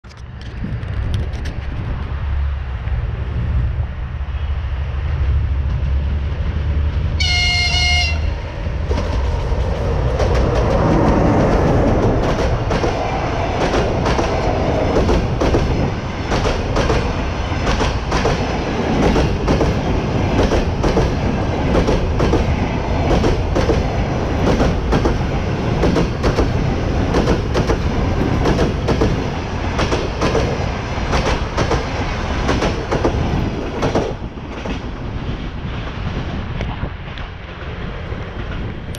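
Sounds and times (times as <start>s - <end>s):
train rolling rumble: 0.0s - 38.9s
train horn blast: 7.2s - 8.6s
train wheels clattering: 8.9s - 34.9s.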